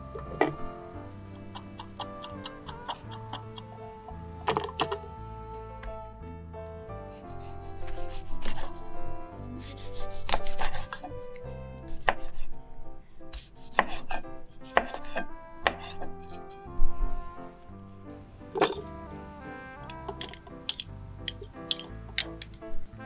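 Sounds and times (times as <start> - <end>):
knife chopping on wooden board: 11.9 - 12.4, 13.3 - 16.0.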